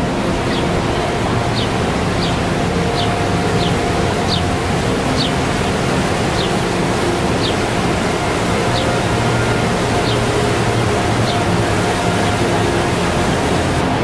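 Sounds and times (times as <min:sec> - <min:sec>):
river rapids rushing: 0:00.0 - 0:14.0.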